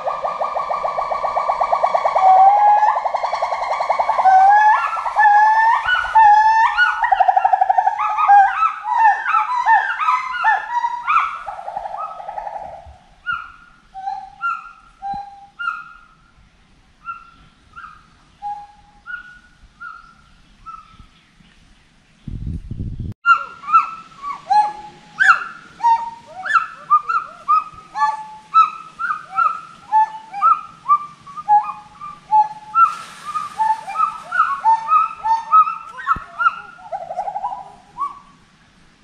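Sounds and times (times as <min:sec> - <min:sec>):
gibbon calling: 0:00.0 - 0:16.1, 0:23.3 - 0:38.4.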